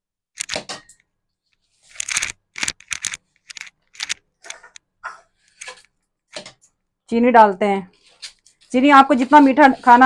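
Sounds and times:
spatula scraping a pan: 0:07.9 - 0:10.0.

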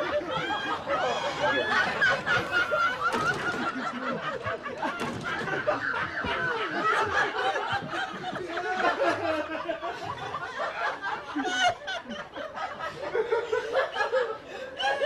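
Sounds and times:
group of people laughing: 0:00.0 - 0:15.0.

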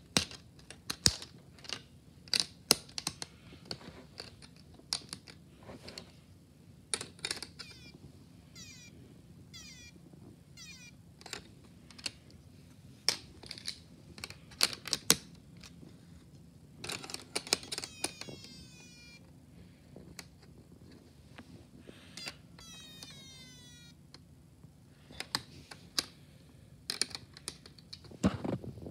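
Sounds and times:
plastic parts clicking: 0:00.1 - 0:06.1, 0:06.9 - 0:07.9, 0:11.2 - 0:12.3, 0:13.1 - 0:15.8, 0:16.8 - 0:19.1, 0:22.2 - 0:23.5, 0:25.1 - 0:26.2, 0:26.9 - 0:28.1
electronic chirps falling in pitch: 0:08.6 - 0:08.9, 0:09.6 - 0:10.0, 0:10.6 - 0:11.0, 0:22.6 - 0:23.9.

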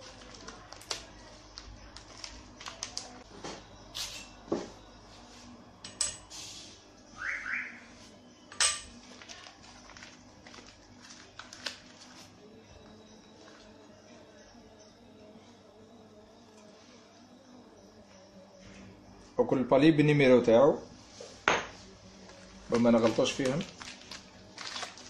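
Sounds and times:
metal parts clicking and clinking: 0:08.5 - 0:09.0.

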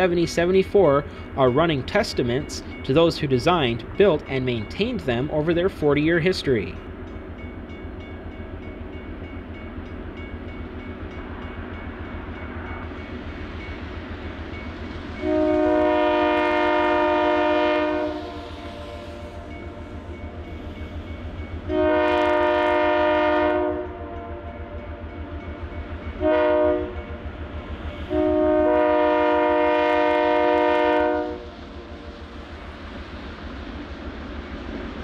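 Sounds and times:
diesel locomotives rumbling: 0:00.0 - 0:35.0
air horn blasts: 0:15.2 - 0:18.8, 0:21.7 - 0:24.2, 0:26.2 - 0:27.0, 0:28.1 - 0:31.4.

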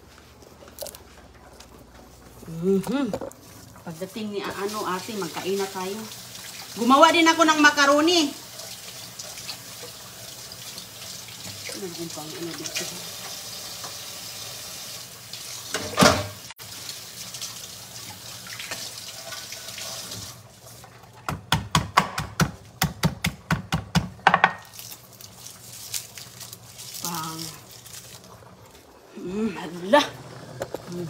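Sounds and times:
faucet running into a steel pot: 0:04.5 - 0:20.4.

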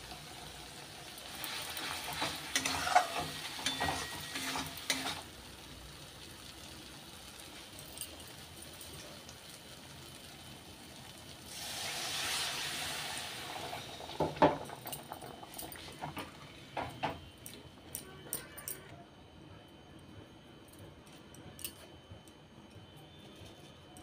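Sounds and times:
water hissing in hot pan: 0:00.0 - 0:14.8
spatula scraping a pan: 0:01.4 - 0:05.3.

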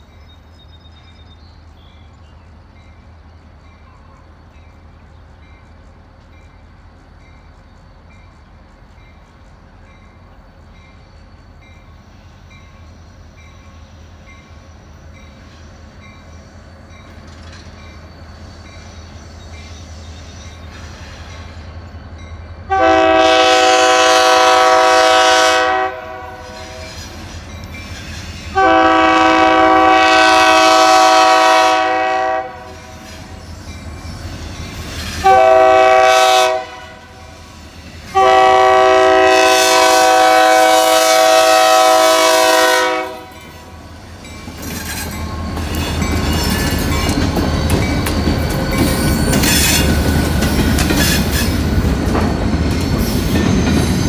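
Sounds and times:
locomotive rumble: 0:00.0 - 0:54.0
locomotive horn blasts: 0:22.7 - 0:27.0, 0:28.5 - 0:33.0, 0:35.2 - 0:37.4, 0:38.1 - 0:43.5.

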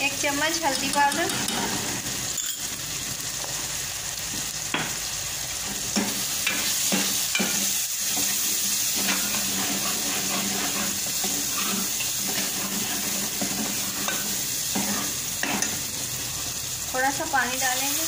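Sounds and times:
masala sizzling in oil: 0:00.0 - 0:18.0
metal spoon scraping pot: 0:09.0 - 0:15.8.

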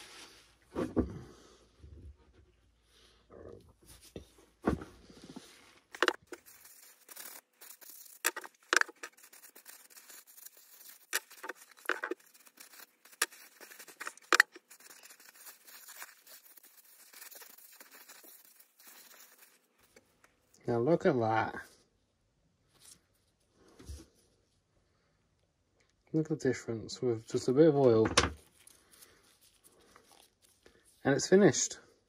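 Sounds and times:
paper towel rubbing on wood: 0:06.0 - 0:19.7.

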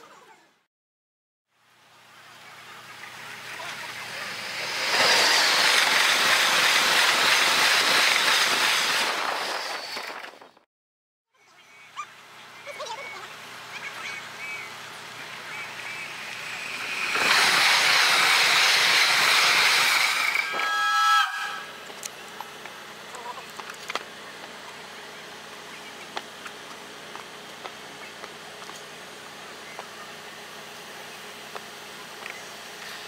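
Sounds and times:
train rushing by: 0:02.8 - 0:10.3, 0:14.9 - 0:21.8
train horn blast: 0:20.4 - 0:21.8.

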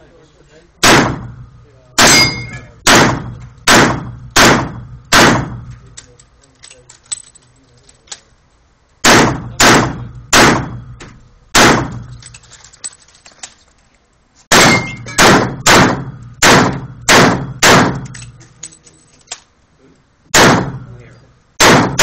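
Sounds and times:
handgun shots echoing indoors: 0:14.5 - 0:18.3, 0:21.6 - 0:22.0.

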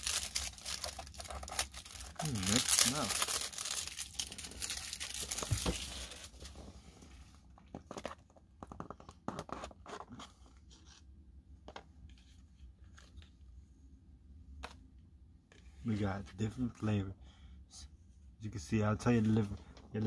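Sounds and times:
packaging tearing and crinkling: 0:00.0 - 0:06.4.

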